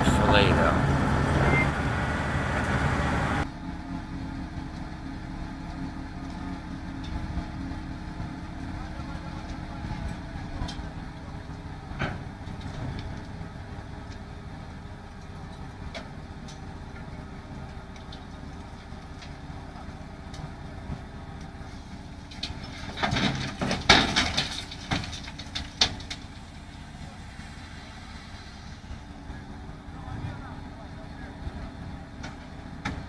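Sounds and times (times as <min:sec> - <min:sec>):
crane engine running: 0:00.0 - 0:33.0
loud knocking and scraping: 0:22.5 - 0:26.4.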